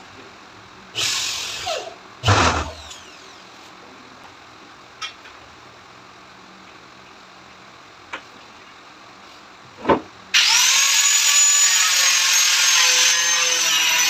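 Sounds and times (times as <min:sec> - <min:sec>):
power tool bursts: 0:01.0 - 0:03.2, 0:10.4 - 0:14.0.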